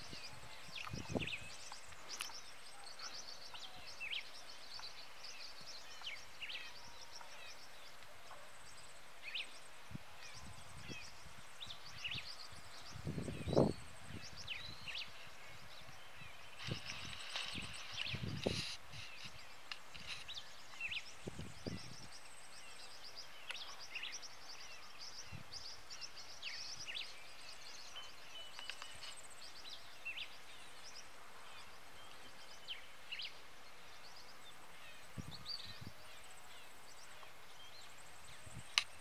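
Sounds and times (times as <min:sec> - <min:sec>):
small birds chirping: 0:00.0 - 0:39.0
steady low hiss: 0:00.0 - 0:39.0.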